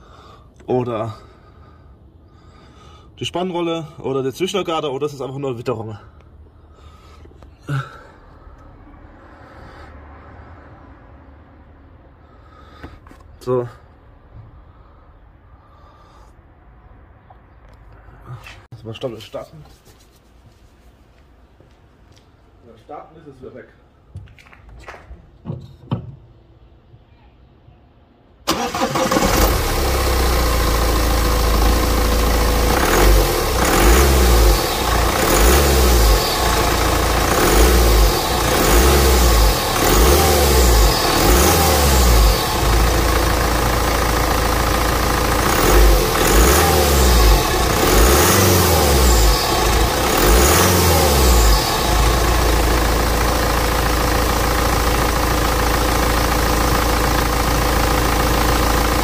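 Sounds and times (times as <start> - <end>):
diesel engine starting and revving: 28.4 - 59.0.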